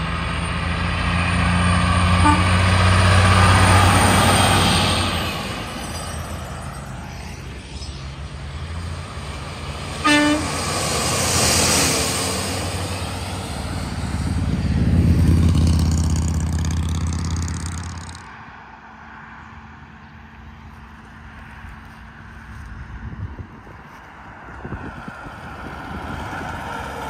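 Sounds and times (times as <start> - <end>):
diesel truck engine drone: 0.0 - 27.0
trucks passing on highway: 0.0 - 27.0
truck air horn toot: 2.1 - 2.9, 10.0 - 10.6.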